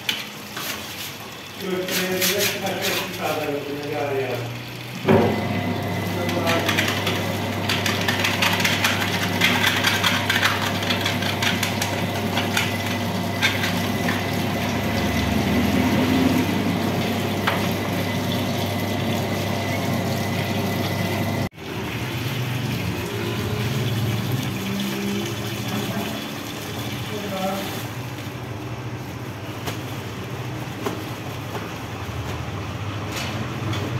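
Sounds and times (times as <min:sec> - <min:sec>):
dough mixer motor hum: 0:05.0 - 0:24.7.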